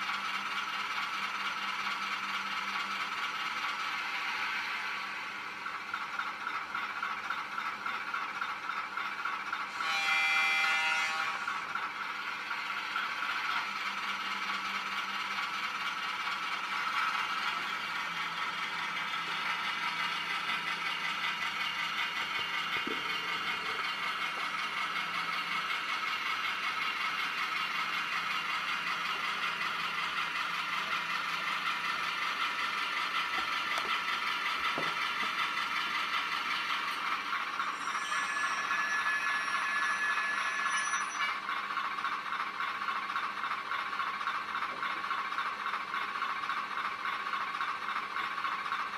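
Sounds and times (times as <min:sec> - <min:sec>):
diesel engine sound from tiny speaker: 0:00.0 - 0:48.9
thin high tones: 0:37.6 - 0:41.4.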